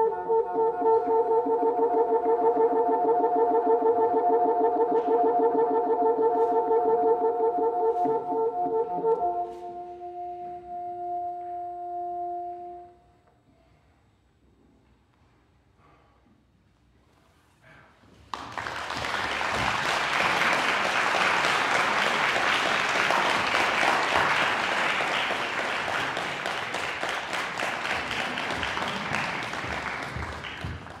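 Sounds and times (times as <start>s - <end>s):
audience applause: 18.3s - 31.0s.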